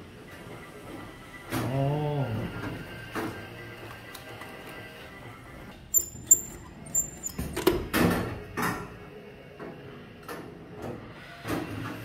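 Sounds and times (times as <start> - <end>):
claw mechanism clunking: 5.9 - 8.3.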